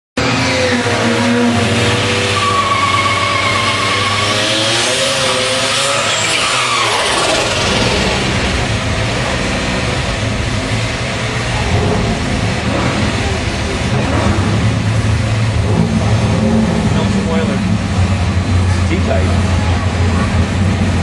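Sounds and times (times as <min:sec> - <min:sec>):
car engine revving: 0:00.2 - 0:21.0
tyres squealing: 0:01.4 - 0:08.4.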